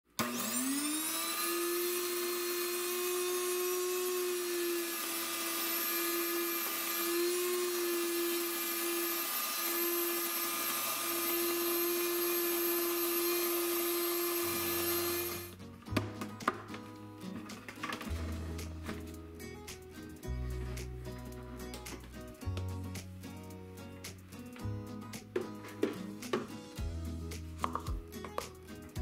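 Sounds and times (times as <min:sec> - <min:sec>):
grain mill motor whine: 0:00.2 - 0:15.6.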